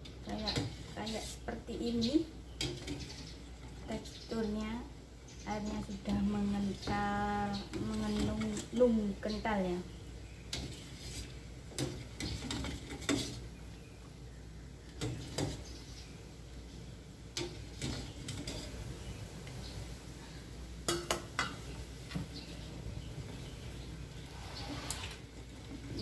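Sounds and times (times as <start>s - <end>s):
ladle scraping a metal pot: 10.5s - 13.5s, 17.8s - 18.8s.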